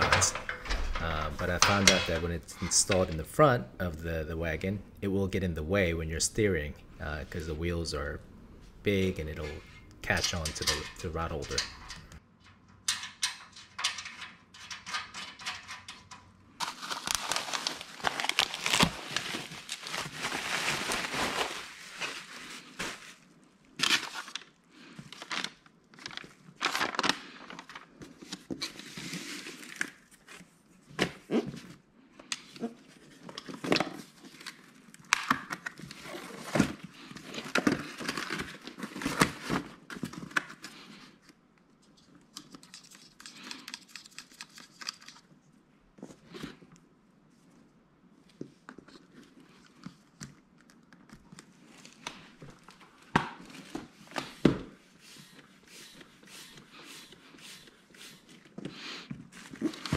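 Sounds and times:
plastic wrap crinkling: 16.6 - 28.0.

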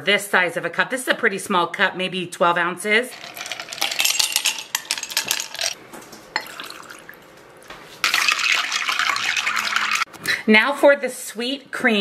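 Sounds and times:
ice cubes clinking into glass: 3.1 - 5.8, 8.0 - 10.0
water pouring over ice: 3.1 - 5.8, 6.4 - 7.2, 8.0 - 10.1.

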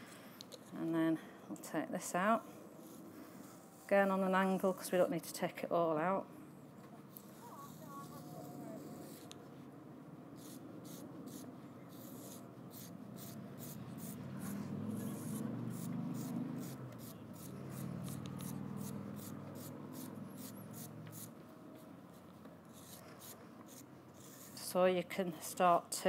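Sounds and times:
carving tool scraping clay: 10.4 - 24.8.

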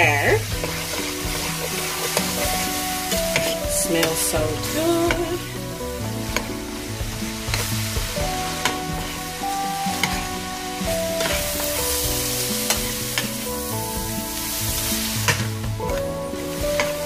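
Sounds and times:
metal spoon scraping a pan: 0.0 - 5.2, 9.9 - 10.5
meat sizzling in a frying pan: 0.0 - 17.0.

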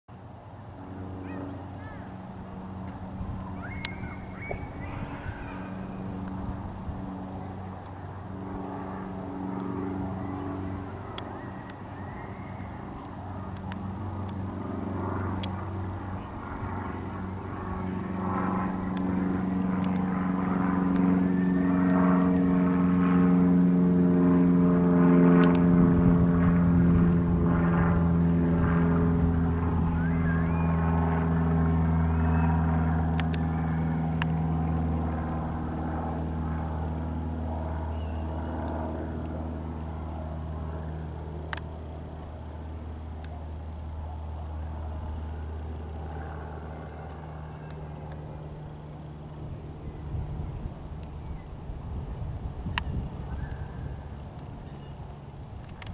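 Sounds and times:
light plane flying overhead: 0.1 - 55.9.

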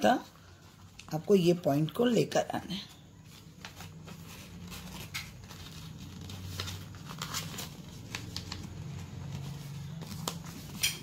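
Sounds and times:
paper crinkling and creasing: 2.7 - 11.0.

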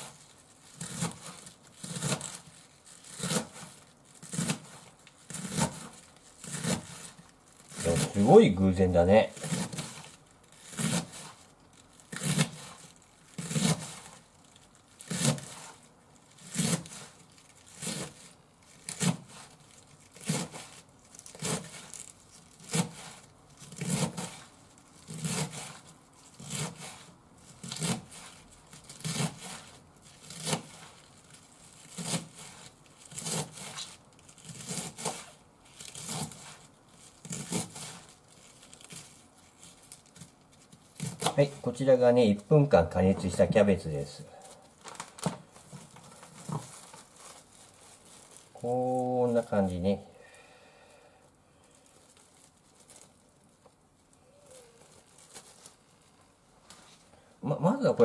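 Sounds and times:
knife cutting cabbage on board: 0.0 - 14.3, 14.9 - 41.8.

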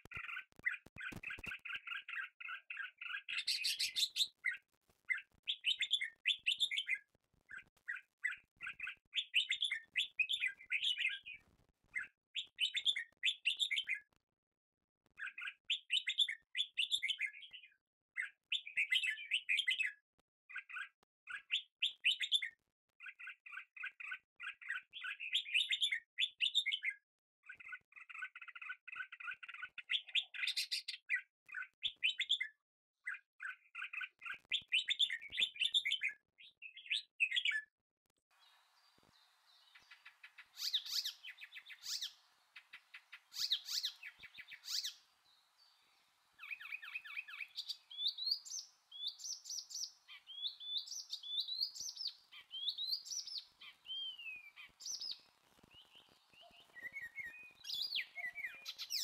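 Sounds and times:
birds chirping and singing: 0.1 - 11.4, 12.0 - 14.0, 38.4 - 59.0
faint steady hiss: 38.4 - 50.2
rising whistled bird notes: 39.8 - 42.7, 43.3 - 45.0, 46.4 - 59.0.

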